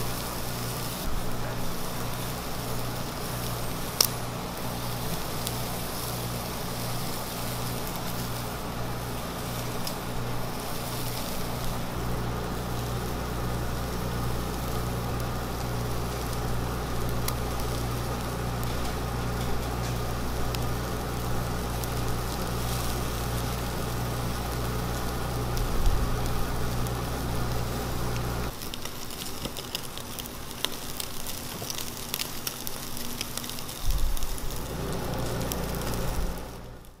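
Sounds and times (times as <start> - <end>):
steady low hum: 0.0 - 29.2, 29.8 - 37.0
food sizzling on charcoal grill: 0.0 - 37.0.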